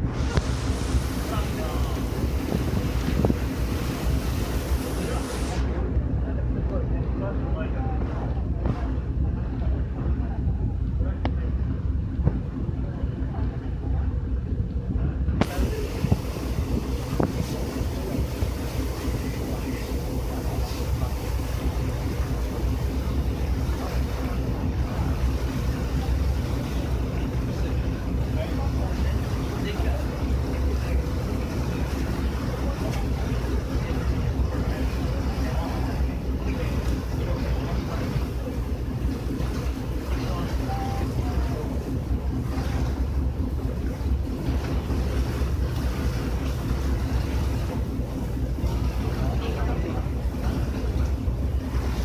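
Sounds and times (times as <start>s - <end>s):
wind on microphone: 0.0s - 6.2s, 12.2s - 22.4s
ferry engine droning: 0.0s - 52.0s
water rushing along hull: 0.0s - 52.0s
wind buffeting microphone: 0.0s - 52.0s.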